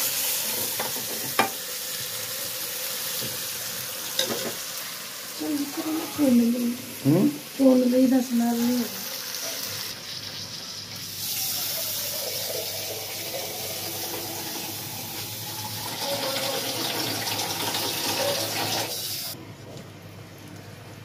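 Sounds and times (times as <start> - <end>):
water pouring into a pot: 10.9 - 19.4.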